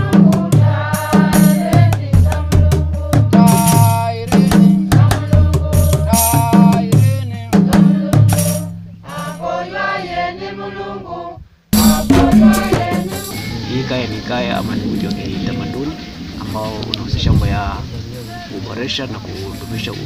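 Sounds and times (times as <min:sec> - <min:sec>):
fast drum strikes: 0:00.0 - 0:09.5, 0:11.7 - 0:15.9
group singing: 0:00.0 - 0:19.0.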